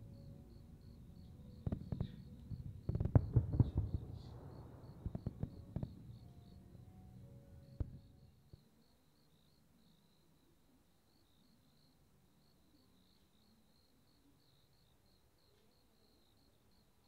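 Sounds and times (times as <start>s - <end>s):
crickets chirping: 0.0s - 17.0s
fireworks bursting and crackling: 1.5s - 6.6s, 7.8s - 8.3s.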